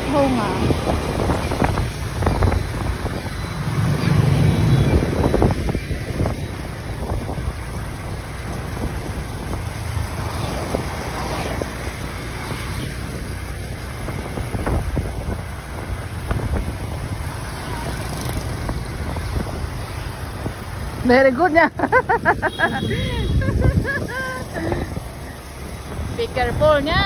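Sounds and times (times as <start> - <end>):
motorbike engine: 0.0 - 27.0
road noise: 0.0 - 27.0
wind rushing over microphone: 0.0 - 27.0.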